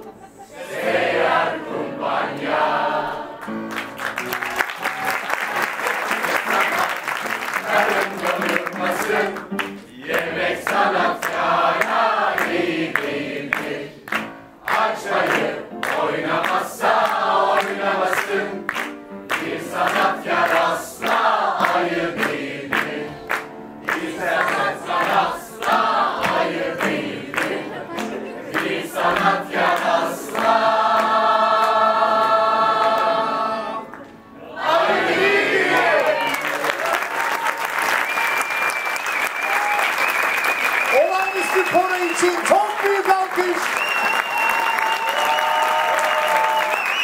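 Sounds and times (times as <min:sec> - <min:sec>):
group singing a song: 0:00.0 - 0:03.6, 0:06.1 - 0:36.3.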